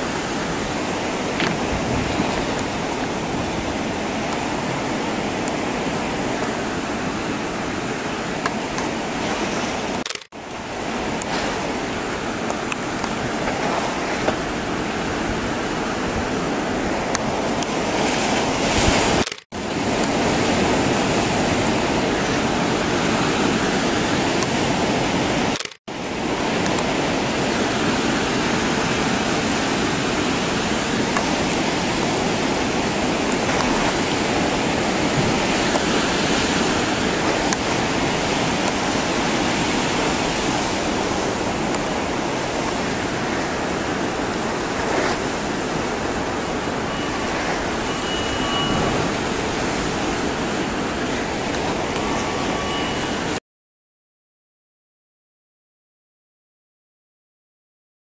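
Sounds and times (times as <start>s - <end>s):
turbulent water rushing: 0.0s - 53.4s.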